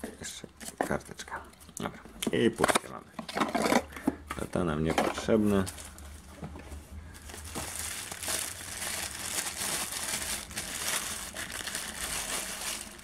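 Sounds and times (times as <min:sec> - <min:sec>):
plastic wrapping crinkling: 0:05.2 - 0:06.2, 0:07.1 - 0:13.0.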